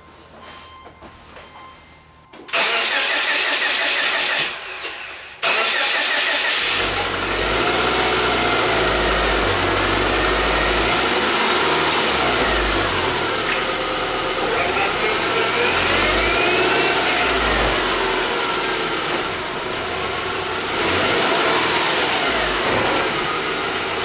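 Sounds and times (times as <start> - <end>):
faint drivetrain whine: 2.3 - 24.0
car engine running: 2.6 - 24.0
drivetrain rumble: 8.6 - 24.0.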